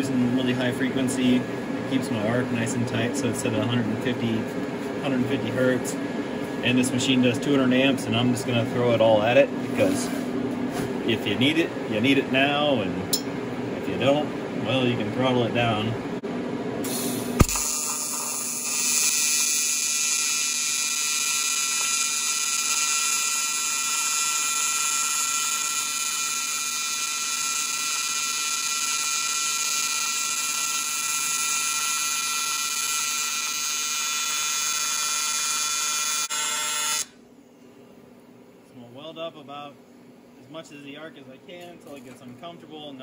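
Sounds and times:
welding arc buzzing: 0:16.9 - 0:37.2
arc striking crack: 0:17.4 - 0:18.1.

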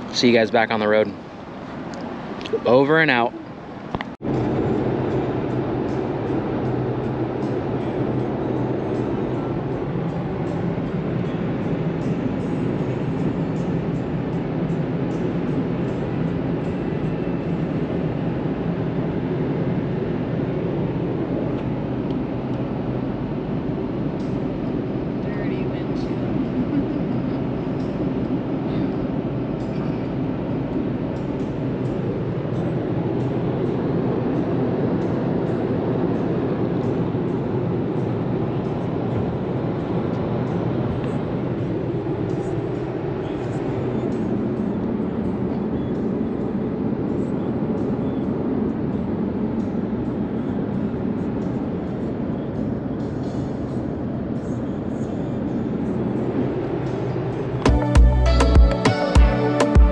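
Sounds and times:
truck road and engine rumble: 0:00.0 - 0:59.9.

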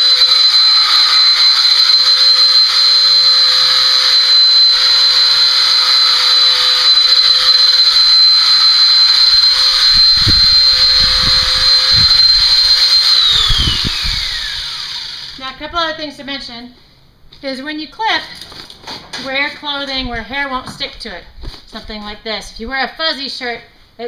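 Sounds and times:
electric clippers whining: 0:00.0 - 0:15.7
low bumps: 0:09.4 - 0:14.5.

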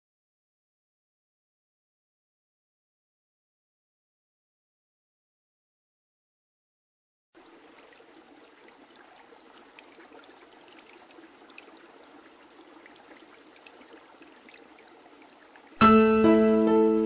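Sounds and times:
faint trickling water: 0:07.4 - 0:15.8.

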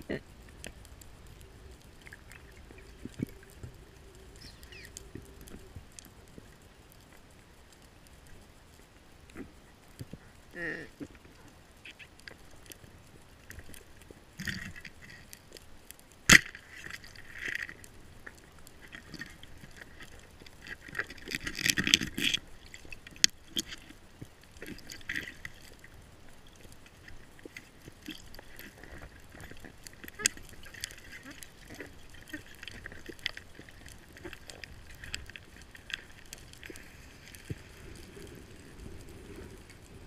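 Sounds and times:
rushes of water: 0:16.3 - 0:40.0.

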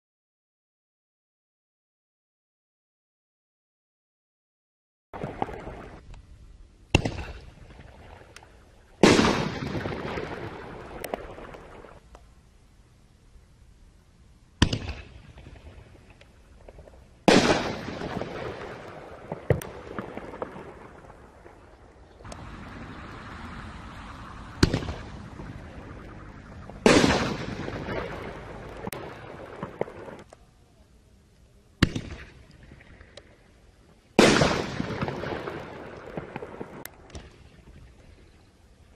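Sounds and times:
mortar tube launch report: 0:05.2 - 0:12.3, 0:14.6 - 0:33.4, 0:34.1 - 0:38.2
firework shell bursting overhead: 0:09.0 - 0:11.8, 0:24.5 - 0:26.0, 0:26.8 - 0:30.2
fizzing and small pops: 0:09.6 - 0:12.3.

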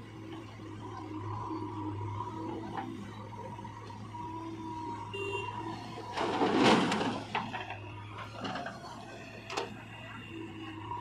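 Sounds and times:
soil scraping and falling: 0:06.1 - 0:07.8.

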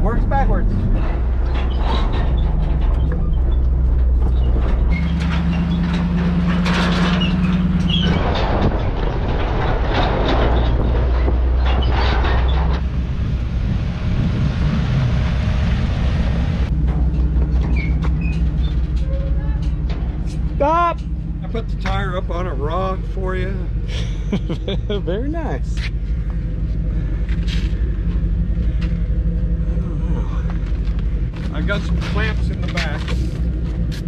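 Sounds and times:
truck engine running: 0:00.0 - 0:34.0
body knocks and rattles: 0:16.7 - 0:22.0.

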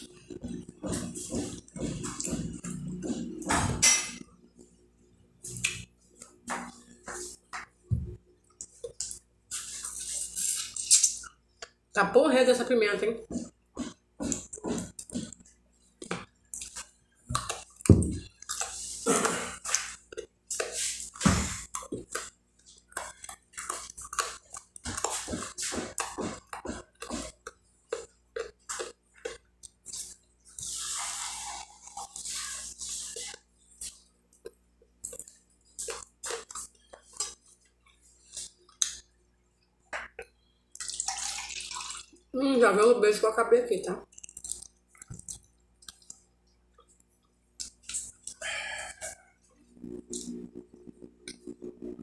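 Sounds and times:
lip smacking and chewing: 0:16.0 - 0:19.0, 0:21.7 - 0:25.3, 0:31.7 - 0:39.0, 0:44.0 - 0:48.4.

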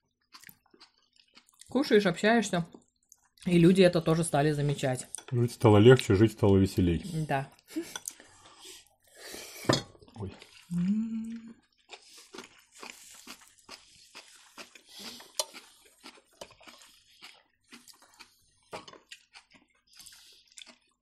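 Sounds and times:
chewing crunches: 0:00.1 - 0:01.8, 0:10.1 - 0:21.0.

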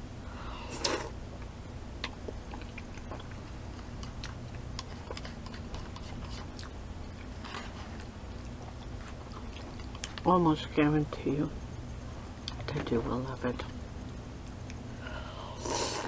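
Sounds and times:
person slurping noodles: 0:00.6 - 0:01.2, 0:15.6 - 0:16.0
wet chewing: 0:02.0 - 0:10.3.

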